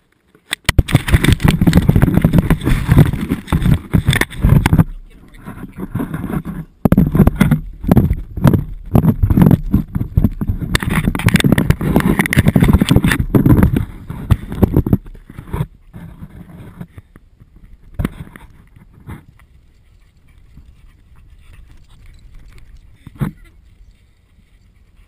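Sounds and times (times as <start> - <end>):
camera housing knocking and scraping: 0.5 - 4.9, 5.8 - 16.9, 17.9 - 19.3.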